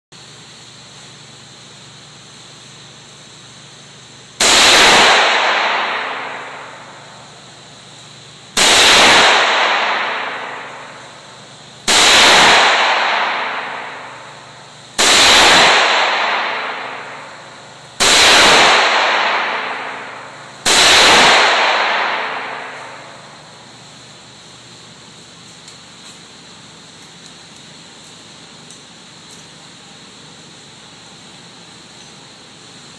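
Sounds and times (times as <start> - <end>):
revolver gunshots echoing: 4.4 - 7.5, 8.6 - 23.6.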